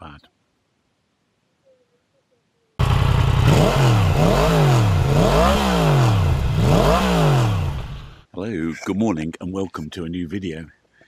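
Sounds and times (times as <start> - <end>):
motorcycle engine revving: 2.8 - 8.2.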